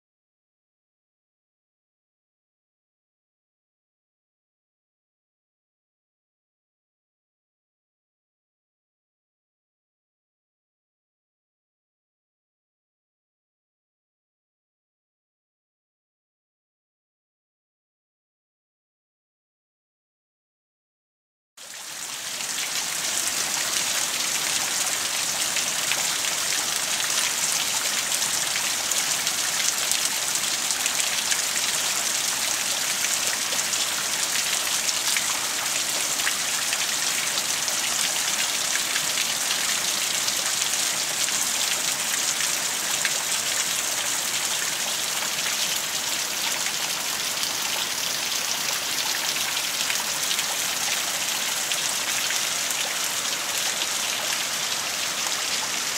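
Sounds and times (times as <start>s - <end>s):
rain falling: 21.6s - 55.9s.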